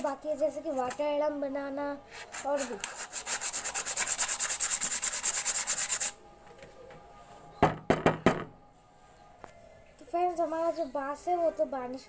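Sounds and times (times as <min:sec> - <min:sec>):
sandpaper rubbing on bamboo: 0:02.1 - 0:06.2
sharp knock: 0:07.6 - 0:08.6.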